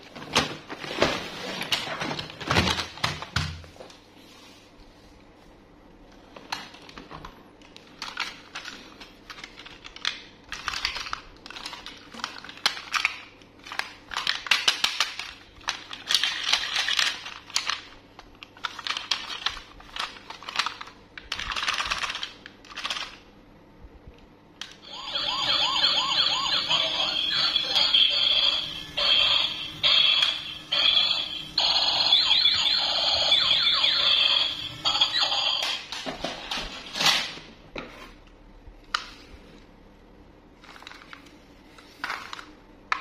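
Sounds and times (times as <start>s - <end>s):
plastic toys clattering: 7.9s - 17.9s, 18.5s - 23.2s
toy police car siren: 24.8s - 35.8s.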